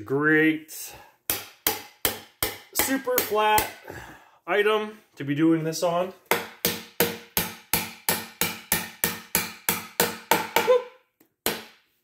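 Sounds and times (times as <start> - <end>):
hammer striking threaded rod: 1.3 - 3.8, 6.3 - 10.7.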